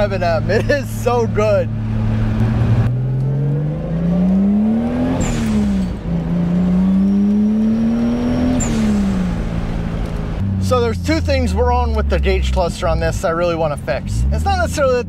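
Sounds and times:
car engine revving through gears: 0:01.2 - 0:14.9
high chirp at gear shift: 0:02.3 - 0:10.4.

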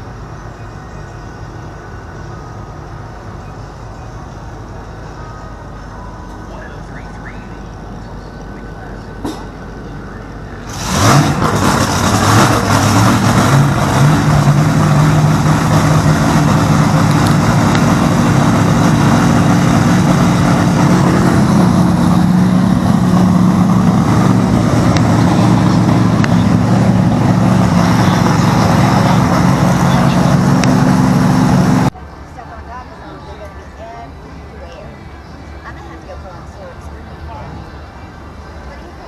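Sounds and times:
race car engine running loudly: 0:10.6 - 0:31.9.

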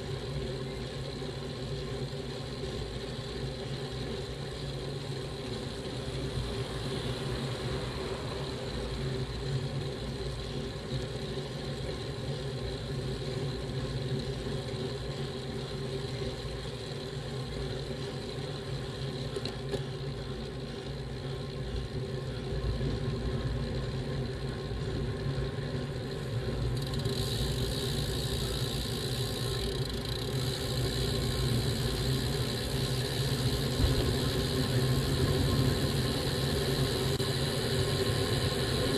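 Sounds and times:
wind rumble: 0:33.6 - 0:37.2.

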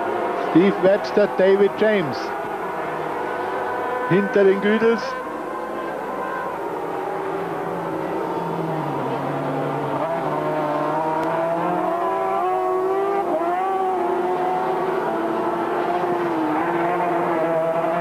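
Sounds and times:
two-stroke engine revving hard: 0:09.4 - 0:18.0.

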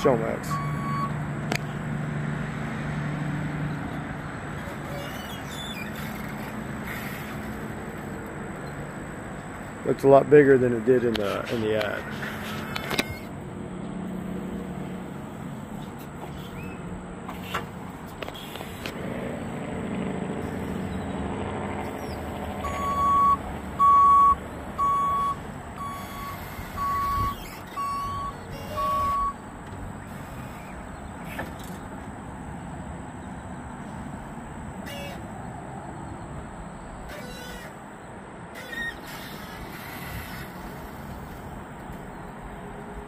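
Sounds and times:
forklift engine humming: 0:00.0 - 0:43.0
reversing alarm beeping: 0:00.4 - 0:01.2, 0:12.8 - 0:13.3, 0:22.6 - 0:29.4.

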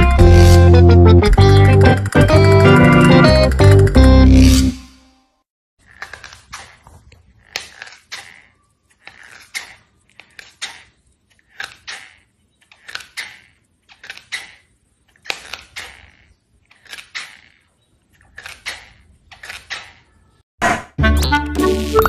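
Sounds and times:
cat gnawing on foam sandal: 0:05.8 - 0:20.1.

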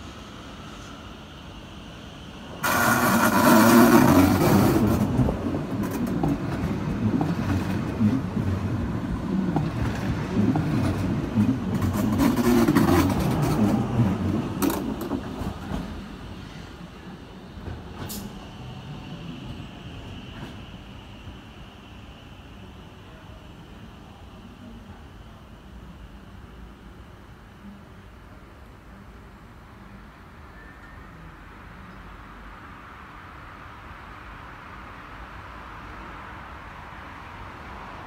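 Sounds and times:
train wheels rumbling on rails: 0:00.0 - 0:27.8.

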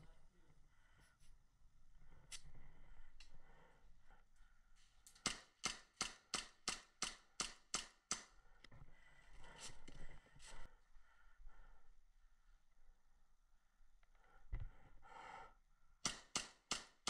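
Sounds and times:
airsoft gun shots: 0:05.2 - 0:08.2.

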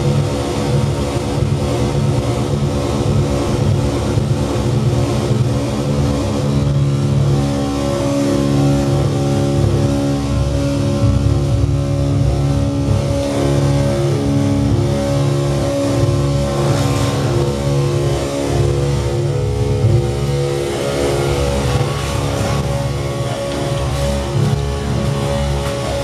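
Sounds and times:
layered low droning tones: 0:00.0 - 0:26.0.

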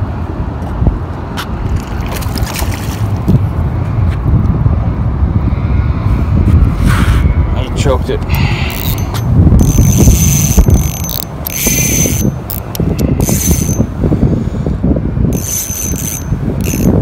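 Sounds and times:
wind rumble on microphone: 0:00.0 - 0:17.0
fishing reel gears whirring: 0:08.3 - 0:13.9, 0:15.3 - 0:17.0.

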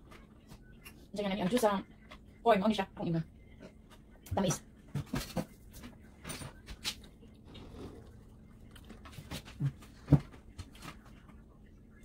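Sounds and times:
person chewing food: 0:07.0 - 0:10.1.

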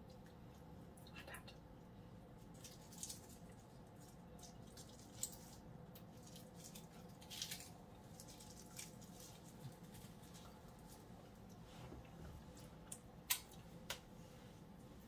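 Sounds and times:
faint steady hum: 0:00.0 - 0:15.0
garlic skins crackling and squishing: 0:02.3 - 0:11.5.

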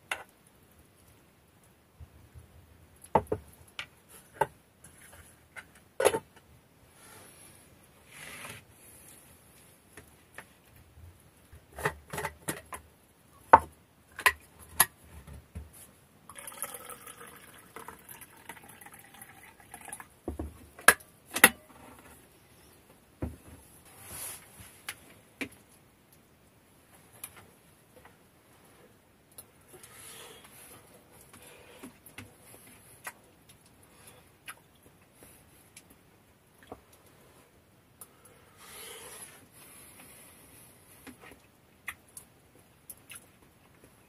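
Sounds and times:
drink pouring into a mug: 0:16.3 - 0:20.1.

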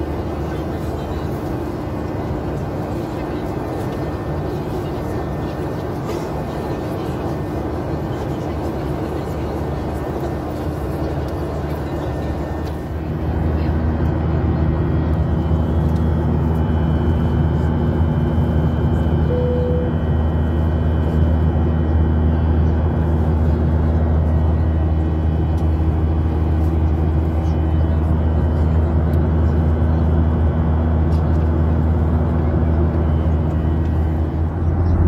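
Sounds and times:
faint steady whines: 0:00.0 - 0:35.0
jet engine drone in cabin: 0:00.0 - 0:35.0
short tone: 0:19.3 - 0:20.0
low hum: 0:33.0 - 0:35.0.

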